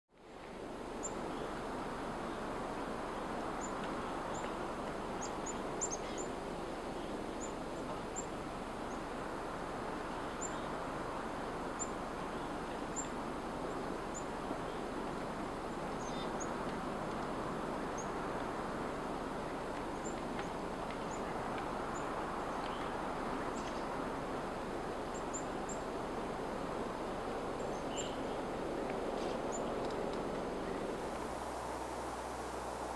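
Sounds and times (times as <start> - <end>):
steady rushing background noise: 0.8 - 32.9
small birds chirping: 5.2 - 6.4, 15.8 - 18.5, 19.8 - 24.0, 27.5 - 31.2.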